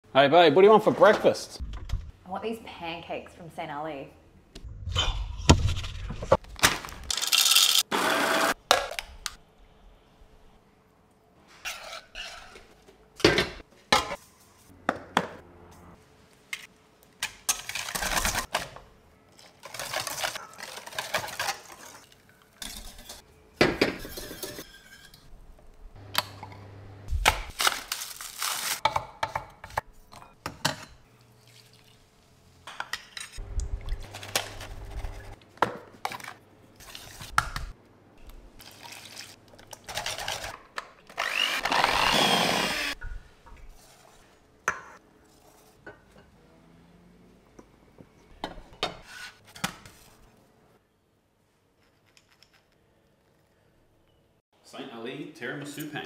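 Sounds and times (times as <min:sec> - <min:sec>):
metal utensils clinking and scraping: 0:19.4 - 0:23.2, 0:23.9 - 0:25.3.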